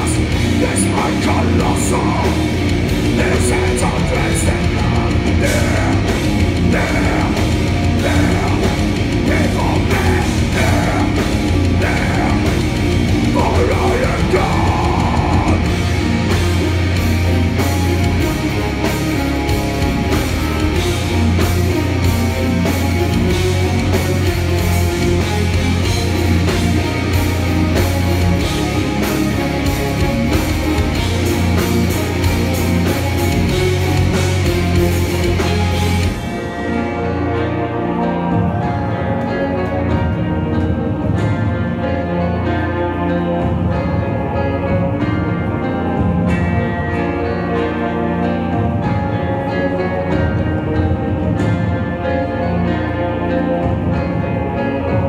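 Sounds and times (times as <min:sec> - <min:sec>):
drum kit: 0:00.0 - 0:42.5
distorted electric guitars: 0:00.0 - 0:55.0
metal band playing live: 0:00.0 - 0:55.0.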